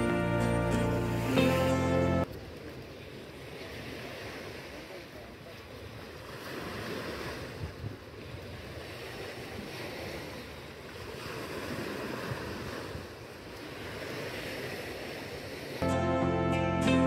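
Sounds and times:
waves breaking on beach: 0.9 - 16.0
wind buffeting microphone: 7.2 - 9.7.

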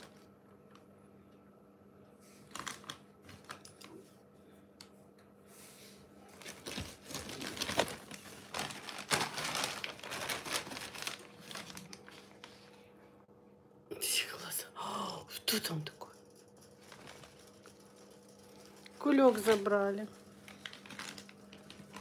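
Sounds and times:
plastic bag crinkling: 0.0 - 0.3, 2.4 - 4.0, 6.3 - 12.8, 16.2 - 22.0.

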